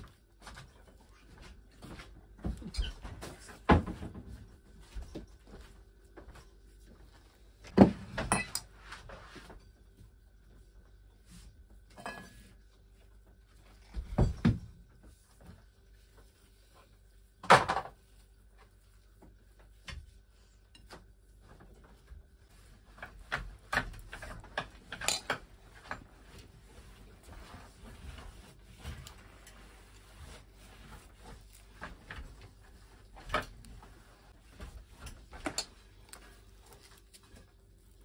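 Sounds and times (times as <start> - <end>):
plates and spoon clinking: 8.2 - 8.7.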